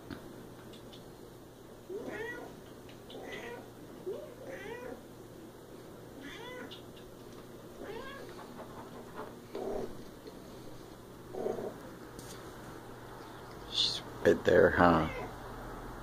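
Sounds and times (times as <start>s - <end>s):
cat meowing: 1.9s - 2.5s, 3.1s - 5.0s, 6.2s - 6.8s, 7.8s - 8.3s, 15.0s - 15.4s.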